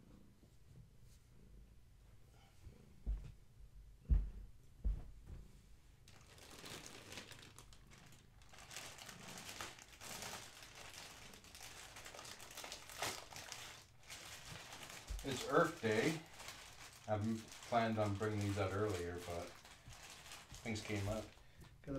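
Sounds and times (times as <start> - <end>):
dull thumps: 4.0 - 5.6
plastic bag crinkling: 6.1 - 21.9.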